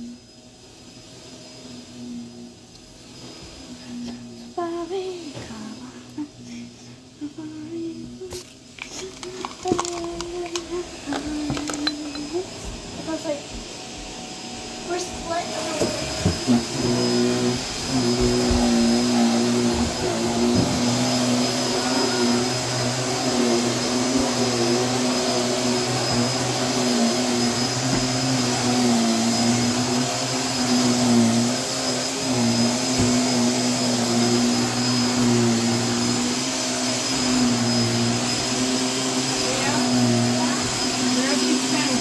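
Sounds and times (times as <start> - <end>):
small motor running: 14.9 - 42.0.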